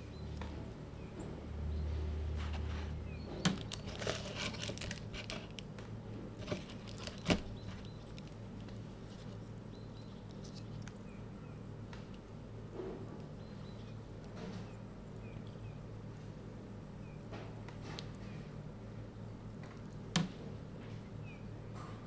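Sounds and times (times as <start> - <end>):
steady low hum: 0.0 - 22.0
plastic cup and paper crinkling: 3.4 - 5.8, 6.4 - 9.5.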